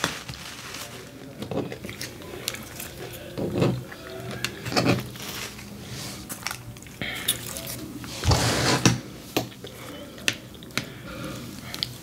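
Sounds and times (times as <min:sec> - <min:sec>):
plastic packets crinkling and tearing: 0:00.0 - 0:08.1.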